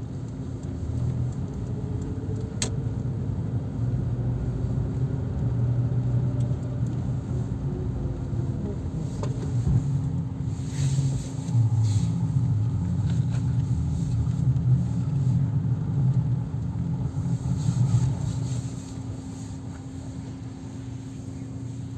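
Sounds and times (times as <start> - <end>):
car engine and road rumble: 0.0 - 21.9.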